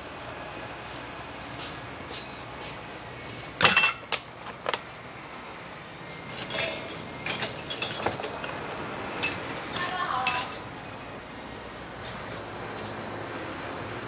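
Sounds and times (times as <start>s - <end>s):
steady background noise: 0.0s - 14.0s
metal clinks and clanks: 3.6s - 4.2s, 6.3s - 8.6s, 9.2s - 10.8s, 12.0s - 13.1s.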